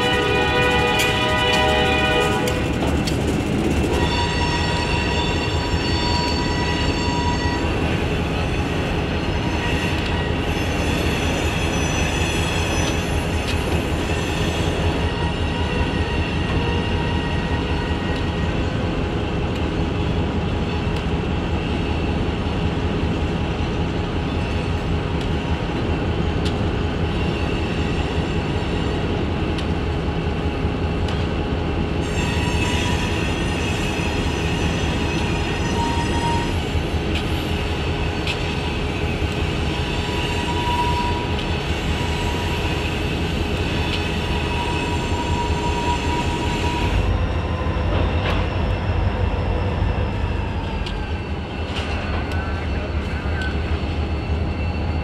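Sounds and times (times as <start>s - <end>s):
freight train cars rumbling: 0.0s - 55.0s
wheel squeal: 9.3s - 18.4s, 32.1s - 37.4s, 39.6s - 55.0s.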